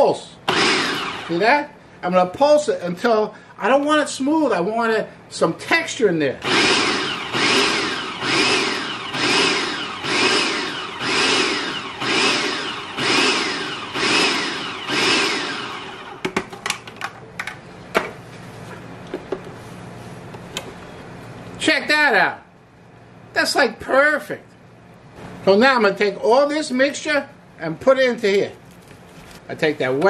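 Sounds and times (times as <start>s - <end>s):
food processor motor whine: 0.5s - 1.4s, 6.4s - 16.4s.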